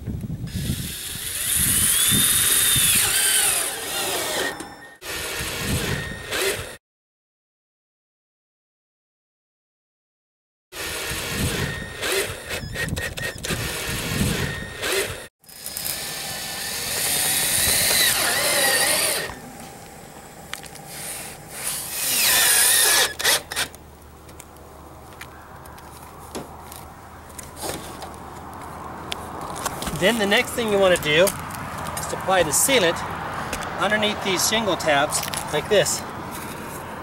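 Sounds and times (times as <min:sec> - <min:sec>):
power drill driving screws: 0:00.5 - 0:06.8, 0:10.8 - 0:19.4, 0:20.9 - 0:23.8.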